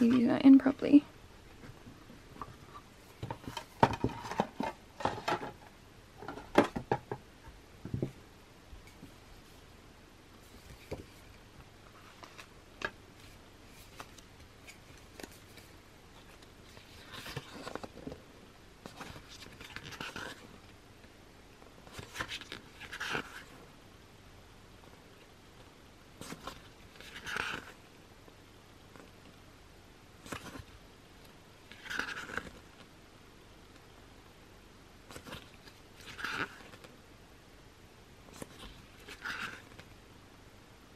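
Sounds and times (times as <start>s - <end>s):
paper pages turning: 11.9s - 12.5s, 13.2s - 18.1s, 18.8s - 20.7s, 21.8s - 23.6s, 26.2s - 27.8s, 31.7s - 32.9s, 35.1s - 36.9s, 38.3s - 39.9s.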